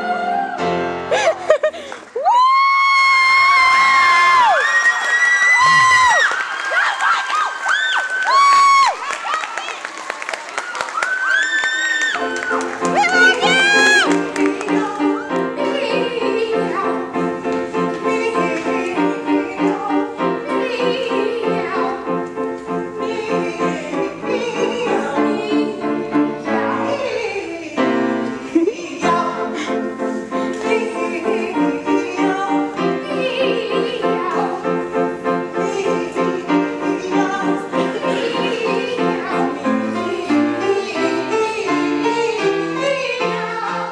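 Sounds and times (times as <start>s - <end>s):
piano: 0.0s - 43.9s
operatic singing: 12.1s - 43.9s.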